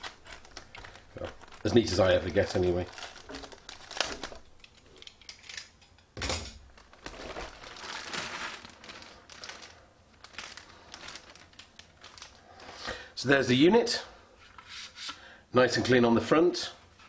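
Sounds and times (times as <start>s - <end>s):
plastic bag crinkling: 0.0s - 5.2s, 6.6s - 12.9s.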